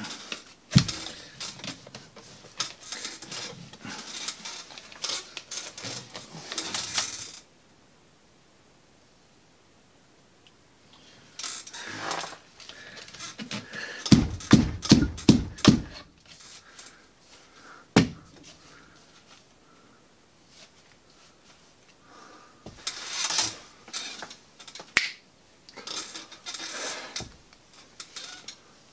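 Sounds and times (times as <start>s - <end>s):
mesh and plastic rustling: 0.0s - 7.5s, 11.3s - 19.6s, 22.7s - 25.0s, 25.8s - 28.9s.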